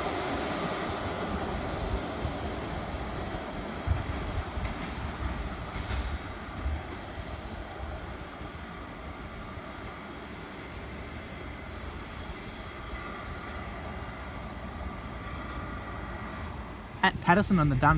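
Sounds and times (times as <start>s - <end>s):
rail motors running on track: 0.0s - 17.9s.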